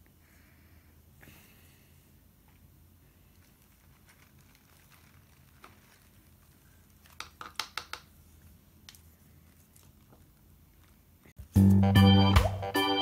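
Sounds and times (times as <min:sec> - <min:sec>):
newspaper crinkling: 0:03.2 - 0:08.1, 0:09.0 - 0:11.2.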